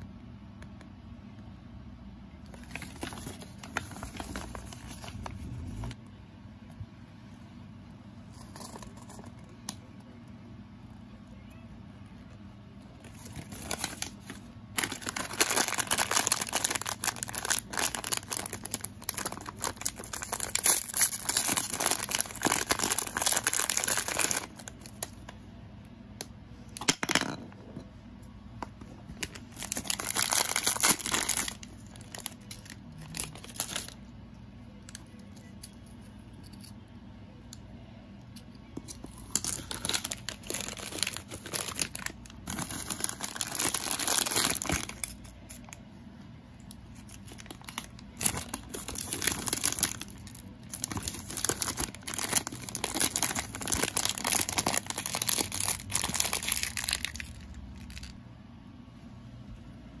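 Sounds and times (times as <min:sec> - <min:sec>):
plastic wrapper crinkling and tearing: 0:02.5 - 0:05.9, 0:13.0 - 0:25.4, 0:29.1 - 0:34.1, 0:38.8 - 0:45.8, 0:46.7 - 0:58.2.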